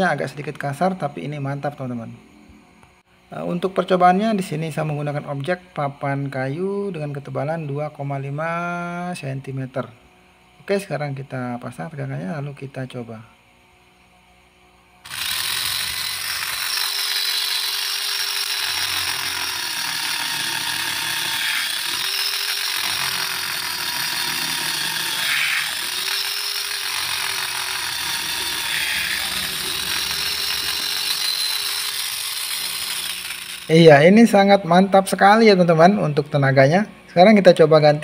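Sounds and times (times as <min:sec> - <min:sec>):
small drill motor drilling wood: 0:15.0 - 0:33.8.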